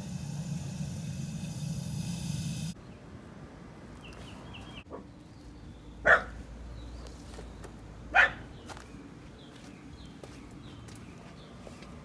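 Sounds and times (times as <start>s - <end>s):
dog barking: 6.0s - 6.4s, 8.1s - 8.4s.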